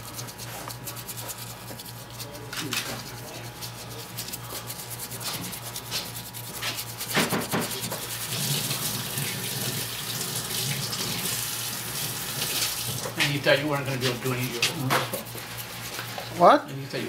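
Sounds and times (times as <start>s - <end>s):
paintbrush scrubbing plaster: 0.0s - 17.0s
running water: 7.3s - 15.2s.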